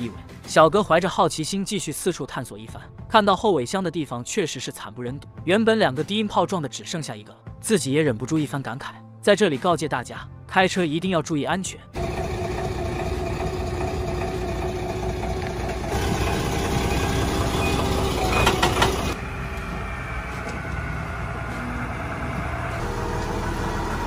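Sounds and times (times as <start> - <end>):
loud clatter: 12.0 - 19.2
vehicle engine running: 12.0 - 24.0.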